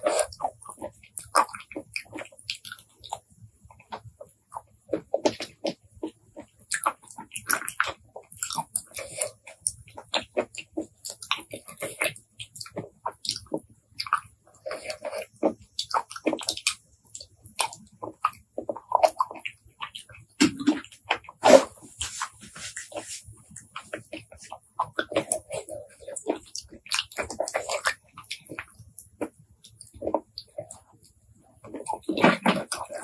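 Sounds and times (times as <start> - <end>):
chewing cockles mouth clicks: 6.7 - 21.8, 23.5 - 33.0.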